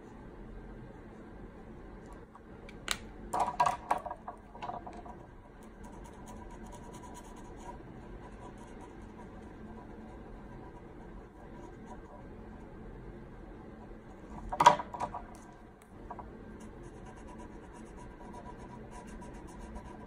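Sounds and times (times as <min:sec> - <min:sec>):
felt-tip pen scratching on paper: 0:05.6 - 0:12.3, 0:16.6 - 0:20.0.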